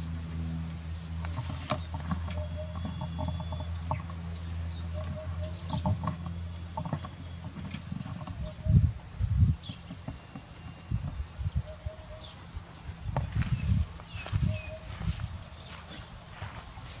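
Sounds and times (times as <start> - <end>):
steady low hum: 0.0 - 17.0
high bird chirps: 9.7 - 12.4, 13.4 - 16.0.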